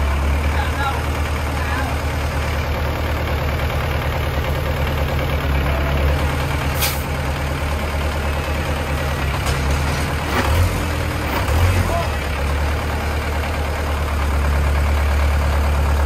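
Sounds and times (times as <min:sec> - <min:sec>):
diesel engine idling: 0:00.0 - 0:16.0
short hiss: 0:06.8 - 0:07.1.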